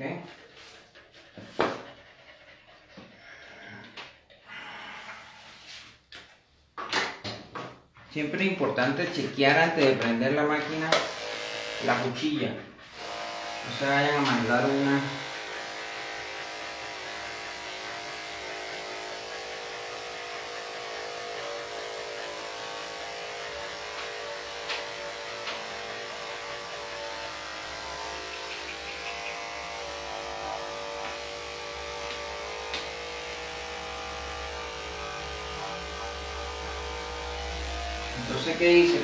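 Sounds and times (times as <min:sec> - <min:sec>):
electric clipper running: 0:08.9 - 0:39.0.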